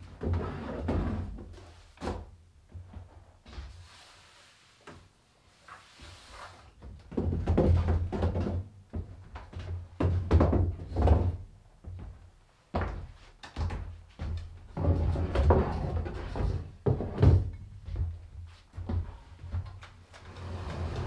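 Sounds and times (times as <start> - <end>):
wooden chairs scraping on floor: 0.2 - 2.2, 3.5 - 6.8, 14.7 - 17.5, 20.1 - 21.0.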